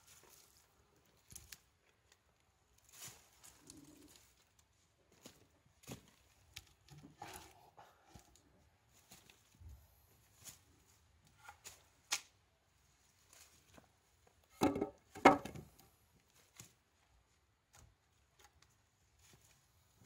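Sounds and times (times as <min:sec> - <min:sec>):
wooden logs knocking: 0:14.6 - 0:15.7.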